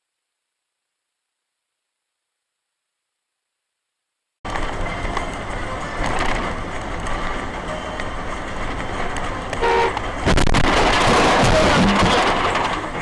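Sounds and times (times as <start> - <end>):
road vehicle rumble: 4.4 - 13.0
short horn toot: 9.6 - 10.0
vehicle collision impact: 9.9 - 13.0.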